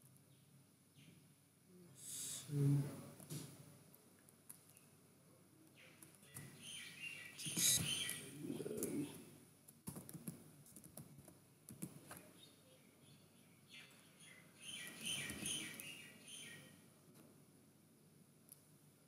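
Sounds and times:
high chirping: 6.3 - 9.1
faint keyboard typing: 9.6 - 12.3.

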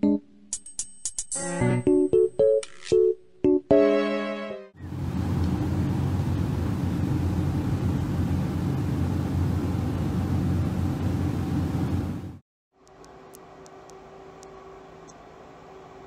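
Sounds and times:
car cabin road noise: 4.8 - 12.4.

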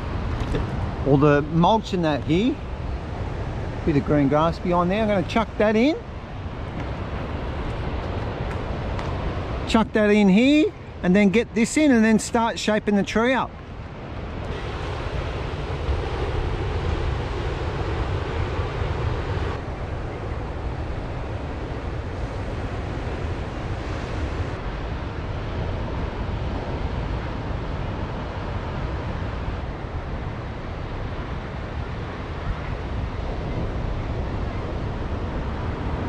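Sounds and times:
wind buffeting microphone: 0.0 - 11.6, 13.4 - 36.0
surf breaking on beach: 14.2 - 36.0.

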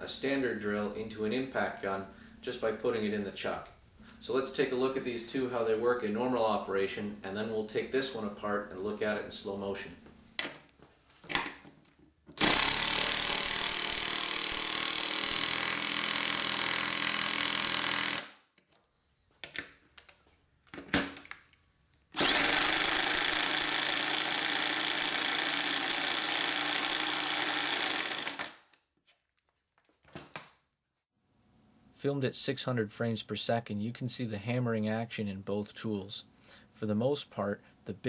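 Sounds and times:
drill with impact adapter hammering: 12.3 - 18.4, 22.1 - 28.8
impact driver hammering screw into wood: 12.4 - 18.4, 22.2 - 28.6.

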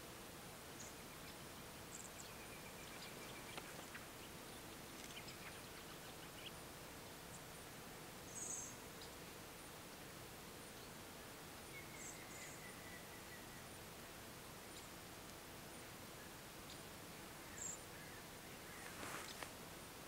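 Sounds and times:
faint steady hum: 0.0 - 20.0
faint bird chirps: 0.8 - 6.6, 8.3 - 9.2, 11.6 - 15.0, 16.1 - 19.4.

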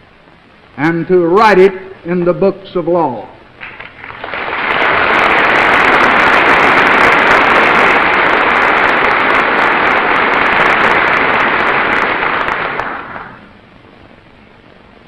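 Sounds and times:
audience applauding: 3.6 - 13.5.

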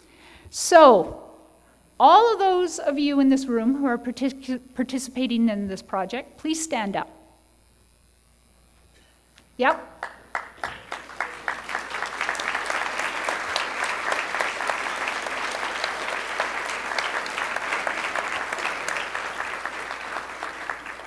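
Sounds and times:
audience applauding: 10.0 - 21.0.

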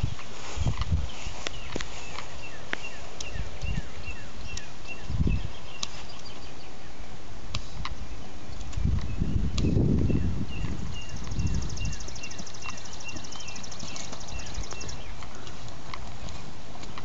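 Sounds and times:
bird chirping: 0.0 - 7.1, 7.8 - 16.4.

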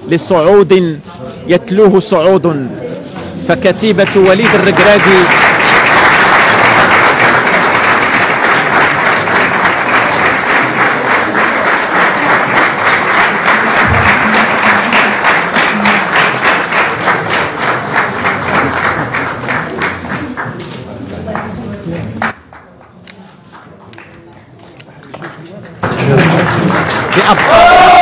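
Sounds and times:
general applause: 3.9 - 21.5, 25.0 - 28.0
rhythmic clapping in unison: 4.0 - 20.6, 21.2 - 28.0.

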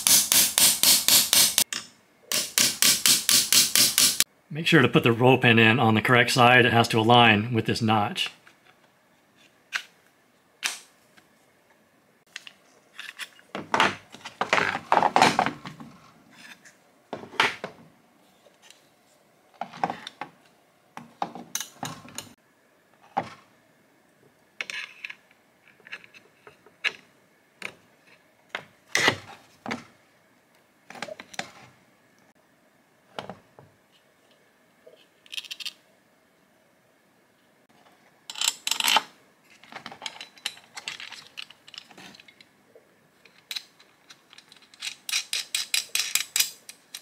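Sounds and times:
clamps clicking and knocking: 43.3 - 47.0.

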